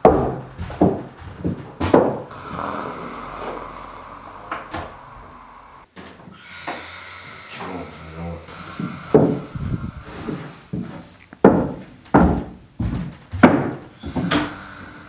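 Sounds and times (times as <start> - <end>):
loud snorts: 2.3 - 10.8
man snoring: 2.3 - 10.8, 14.0 - 15.0.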